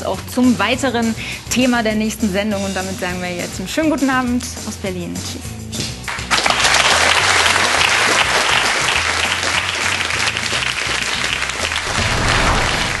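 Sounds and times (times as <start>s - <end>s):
music playing: 0.0s - 13.0s
audience applauding: 6.1s - 13.0s.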